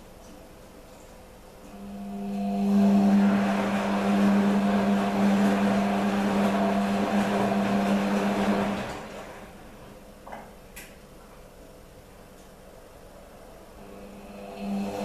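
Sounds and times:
washing machine humming and rushing: 0.0 - 15.0.

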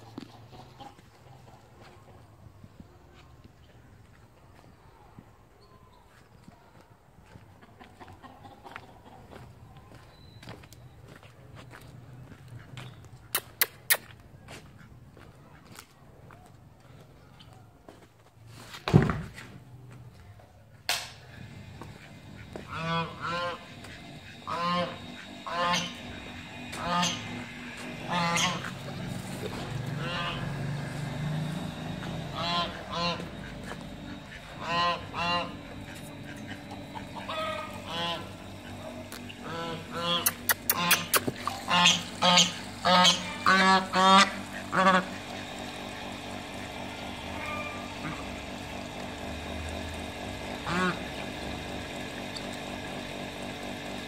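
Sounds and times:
duck quacking: 21.9 - 29.0, 29.9 - 30.6, 32.3 - 45.3, 50.6 - 51.0
goose honking: 22.0 - 30.6, 32.3 - 45.4, 47.2 - 48.3, 50.6 - 51.0.

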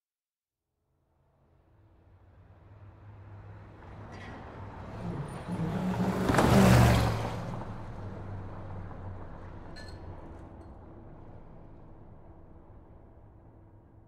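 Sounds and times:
vehicle driving past: 2.3 - 13.5.

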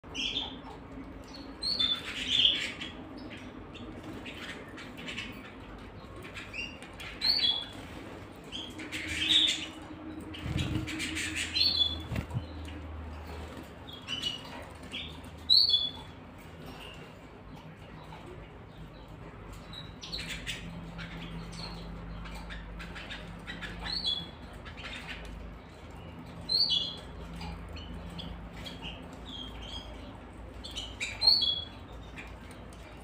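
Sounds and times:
canaries chirping: 0.0 - 33.0
wings fluttering: 10.1 - 13.8.

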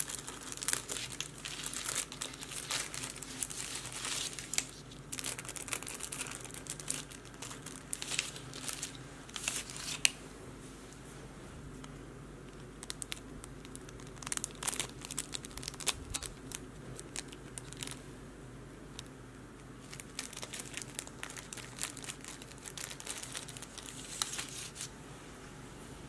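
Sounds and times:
plastic bag crinkling: 0.0 - 10.2, 12.6 - 18.0, 19.8 - 24.9
steady low hum: 0.0 - 26.0.

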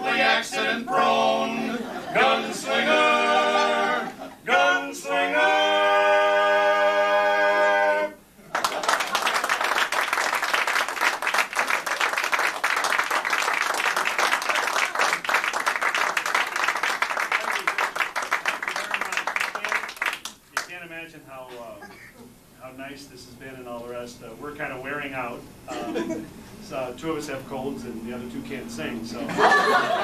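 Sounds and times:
male quartet singing a cappella: 0.0 - 8.2
audience clapping: 8.4 - 20.8.

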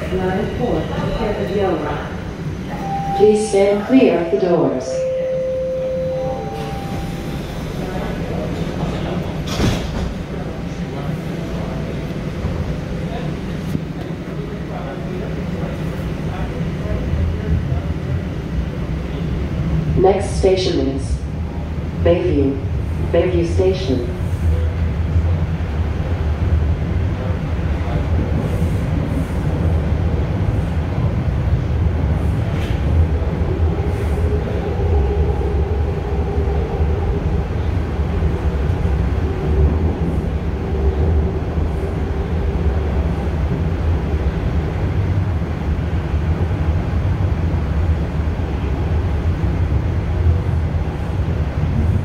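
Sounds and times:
train wheels rumbling on rail: 6.0 - 52.0.

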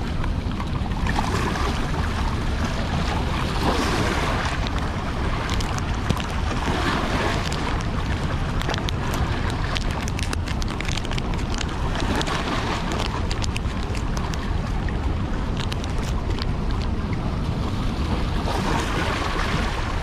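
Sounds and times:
water rushing: 0.0 - 20.0
wind buffeting microphone: 0.0 - 20.0.

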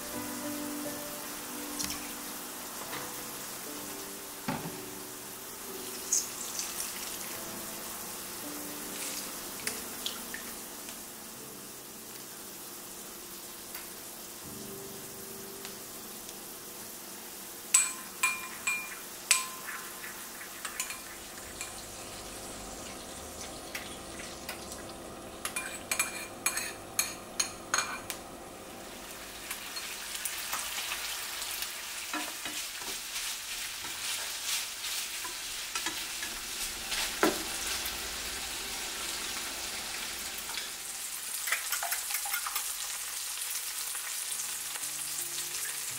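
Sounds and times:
food sizzling in pans: 0.0 - 45.9
utensil clinking against dish: 17.7 - 21.8, 25.4 - 28.1.

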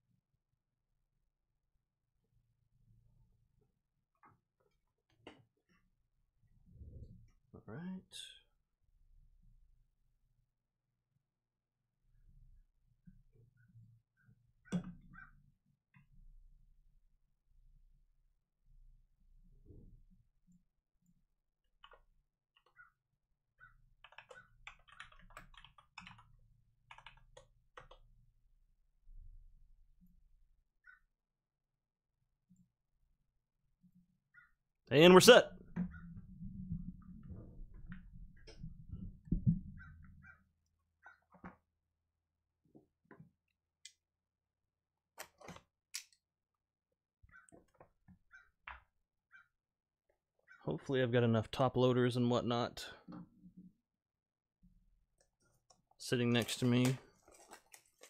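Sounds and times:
typing on computer keyboard: 24.0 - 26.3, 26.9 - 28.0
cardboard box handling rustles: 56.4 - 58.0.

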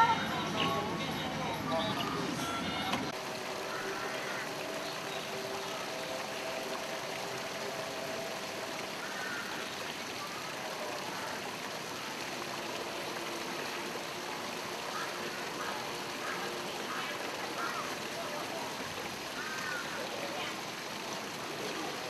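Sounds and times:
running water rushing: 0.0 - 22.0.

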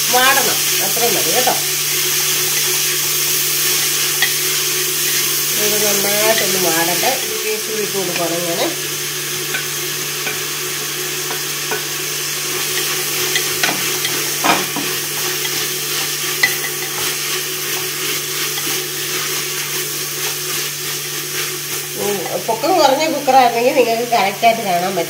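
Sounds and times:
onions sizzling in fat: 0.0 - 25.0
spoon scraping and tapping pot: 11.2 - 11.9, 12.6 - 18.8.

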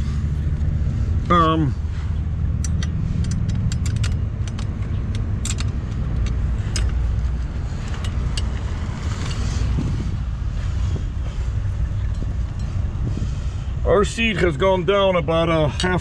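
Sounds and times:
steady low rumble: 0.0 - 16.0
metal clamp clicking and rattling: 2.5 - 9.4.

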